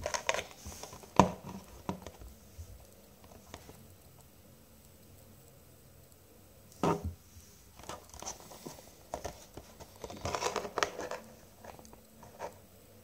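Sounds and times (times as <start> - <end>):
plastic packaging crackling: 0.0 - 2.3, 7.7 - 12.6.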